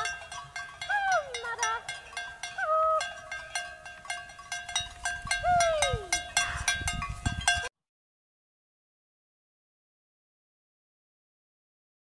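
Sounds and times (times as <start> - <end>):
cowbells clanking: 0.0 - 7.7
woman's high herding call: 0.8 - 4.0, 5.2 - 6.9.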